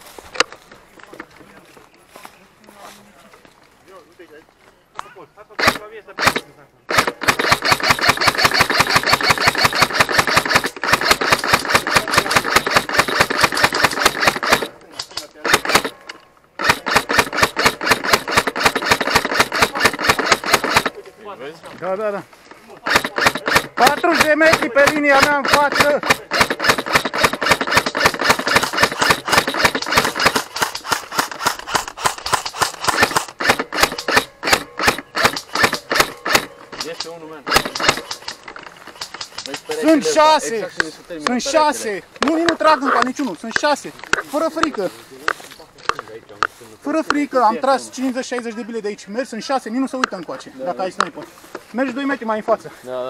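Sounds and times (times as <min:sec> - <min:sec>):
airsoft rifle full-auto burst: 0:05.6 - 0:16.0, 0:16.6 - 0:21.0, 0:22.8 - 0:40.6.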